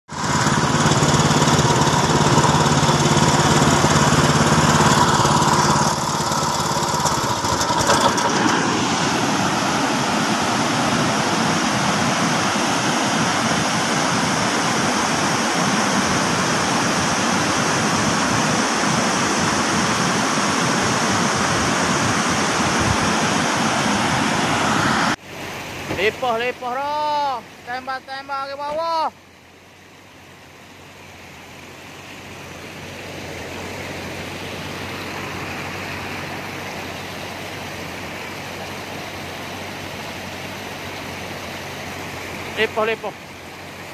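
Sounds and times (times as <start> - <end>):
small engine running: 0.1 - 25.2
floodwater rushing: 0.1 - 43.9.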